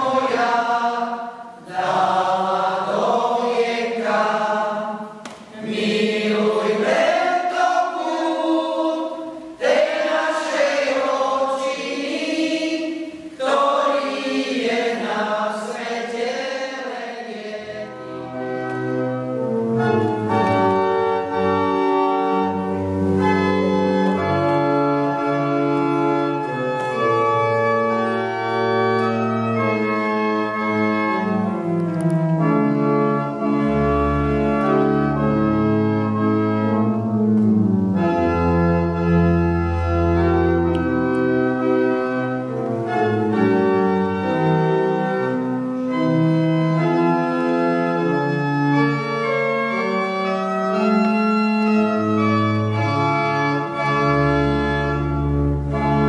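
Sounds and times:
mixed choir singing: 0.0 - 18.3
organ chords: 0.0 - 56.0.

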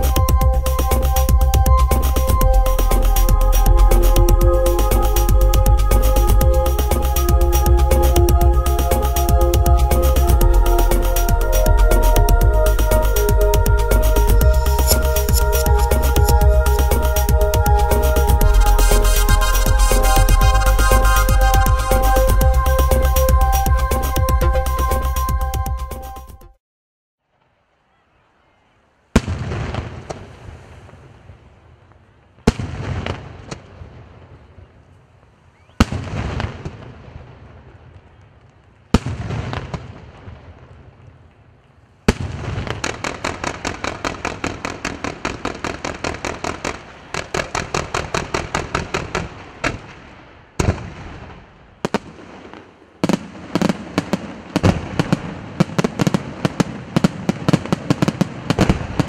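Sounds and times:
firework bangs with rolling echo: 29.2 - 31.2, 32.4 - 34.5, 35.8 - 37.9, 38.9 - 40.8, 42.1 - 59.0.

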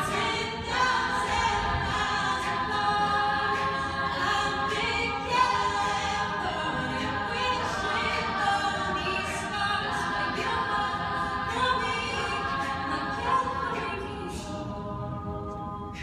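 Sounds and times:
female a cappella group singing: 0.0 - 16.0.

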